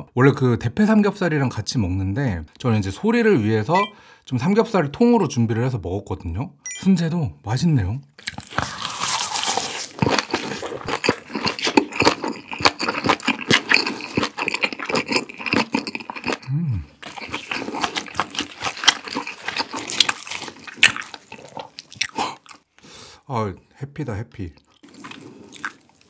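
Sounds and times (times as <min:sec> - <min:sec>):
close chewing with wet crunches: 0:08.2 - 0:22.7, 0:24.7 - 0:26.0.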